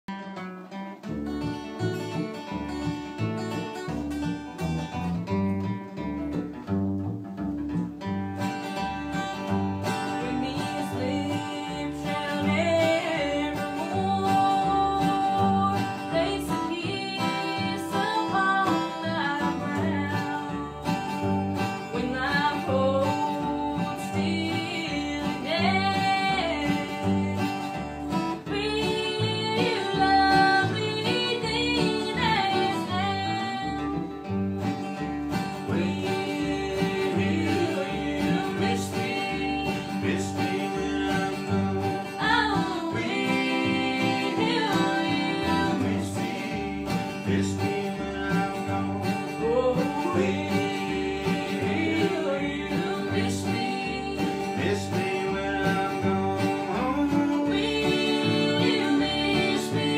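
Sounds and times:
acoustic guitar: 0.0s - 59.9s
upright bass: 0.0s - 59.9s
person singing: 9.9s - 34.2s, 35.4s - 59.9s.

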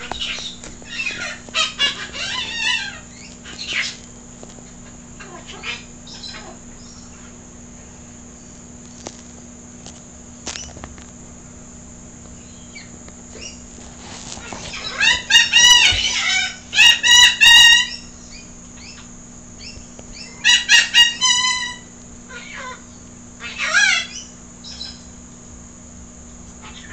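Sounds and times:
kookaburra cackling: 0.0s - 4.1s, 5.2s - 6.6s.

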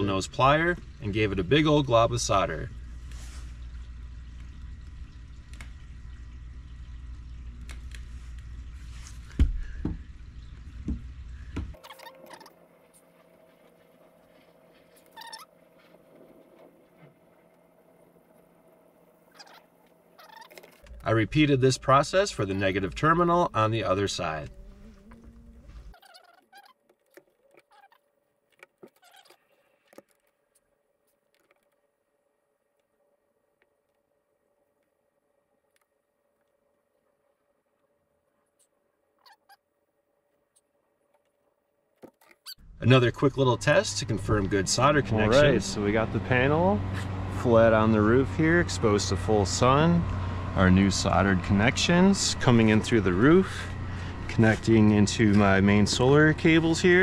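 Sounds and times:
low hum: 0.0s - 26.0s, 42.6s - 57.0s
faint clicks and squeaks: 11.7s - 17.6s, 19.3s - 21.1s, 24.4s - 31.9s, 37.7s - 39.7s, 42.0s - 42.6s.

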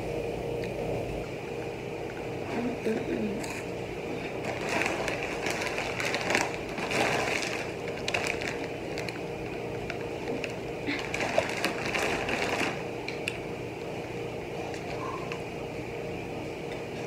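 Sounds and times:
plastic bags crinkling: 4.3s - 12.9s.

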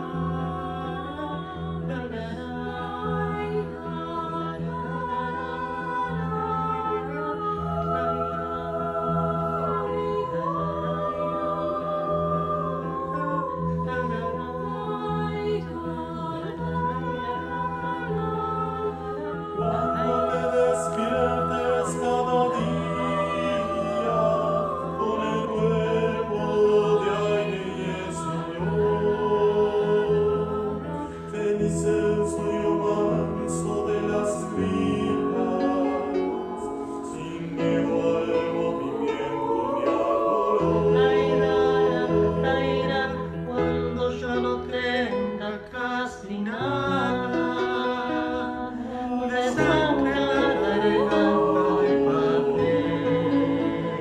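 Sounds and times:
mixed choir singing: 0.0s - 54.0s
piano accompaniment: 0.0s - 54.0s.

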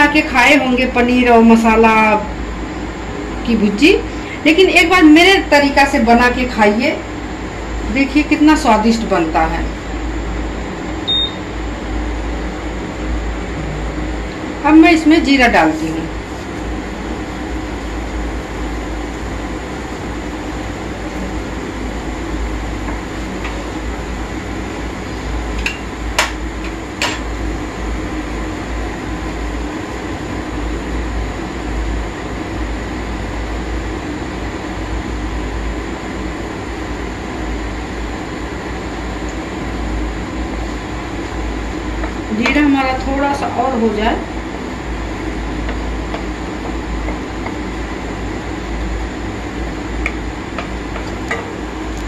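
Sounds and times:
cooktop cooling fan hum: 0.0s - 52.0s.

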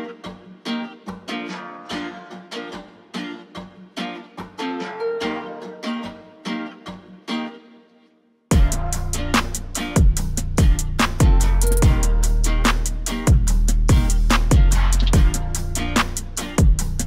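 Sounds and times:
plucked string music: 0.0s - 17.0s
music with drums and heavy bass: 8.5s - 17.0s.

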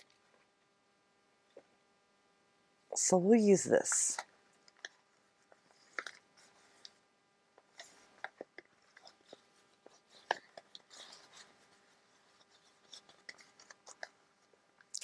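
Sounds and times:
fabric and paper rustling: 4.8s - 7.0s, 7.7s - 14.6s.

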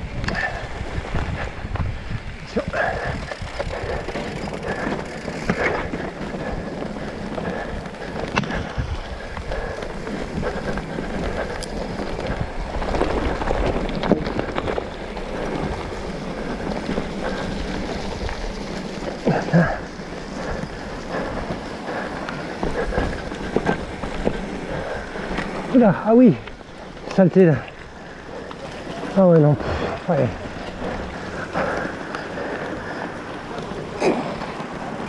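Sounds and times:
wind rush on microphone: 0.0s - 26.6s
bike rattling over bumps: 0.0s - 35.0s
bike tyre noise: 0.0s - 35.0s.

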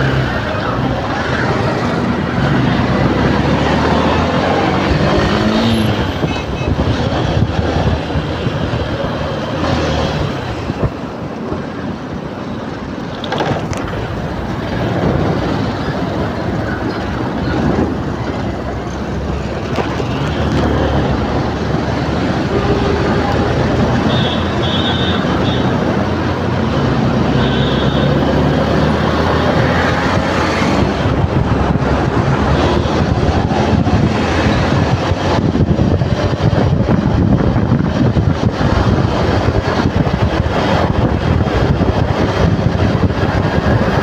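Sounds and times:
rickshaw engine running: 0.0s - 29.6s
passing motorcycles cars and trucks: 0.0s - 44.0s
tyre and wind noise: 0.0s - 44.0s.

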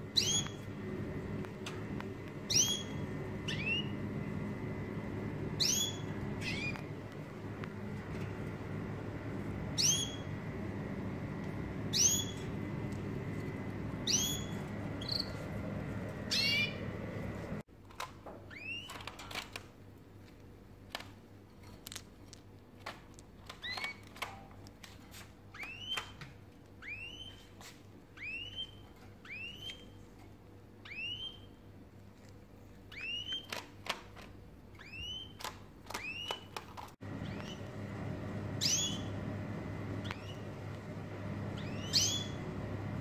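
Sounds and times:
finch calling: 0.1s - 0.6s, 2.4s - 4.0s, 5.5s - 6.8s, 9.7s - 10.4s, 11.8s - 12.6s, 13.9s - 15.5s, 16.2s - 17.0s, 37.1s - 37.7s, 38.5s - 39.2s, 40.0s - 40.5s, 41.5s - 42.6s.

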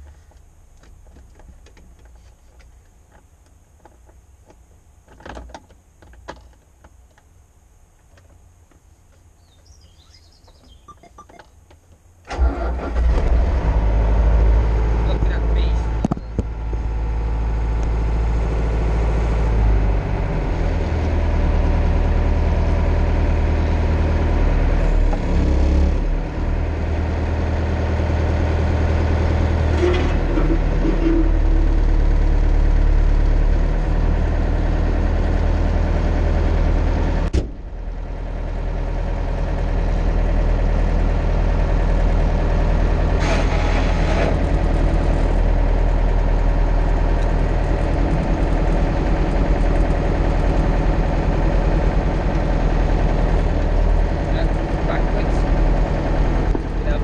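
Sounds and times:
tractor diesel engine idling: 12.3s - 13.2s, 14.6s - 57.0s.

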